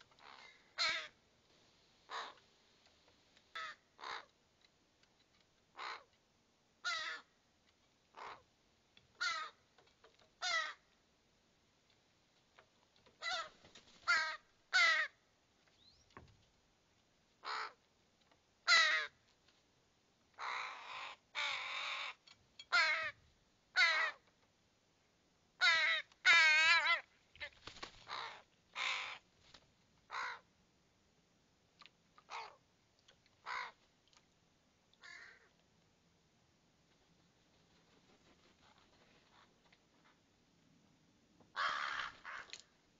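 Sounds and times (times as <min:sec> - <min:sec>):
young ravens cawing: 0:00.2 - 0:01.2, 0:02.1 - 0:02.4, 0:03.5 - 0:04.4, 0:05.8 - 0:06.1, 0:06.8 - 0:07.4, 0:09.2 - 0:09.6, 0:10.4 - 0:10.9, 0:13.2 - 0:15.2, 0:17.4 - 0:17.8, 0:18.7 - 0:19.2, 0:20.4 - 0:24.2, 0:25.6 - 0:29.2, 0:30.1 - 0:30.5, 0:32.3 - 0:32.6, 0:33.4 - 0:33.8, 0:35.0 - 0:35.5, 0:41.5 - 0:42.7.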